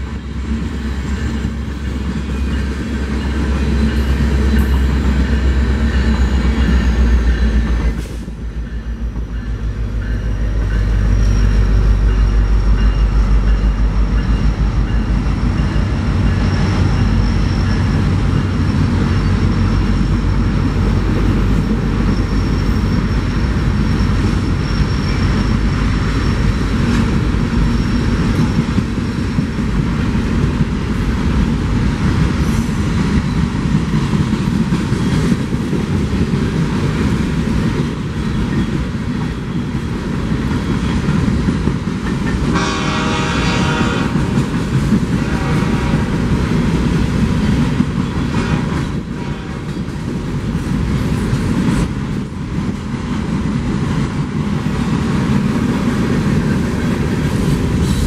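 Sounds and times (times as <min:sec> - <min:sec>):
freight train rumbling past: 0:00.0 - 0:58.0
train horn: 0:42.5 - 0:44.5, 0:45.1 - 0:46.1, 0:48.4 - 0:49.8.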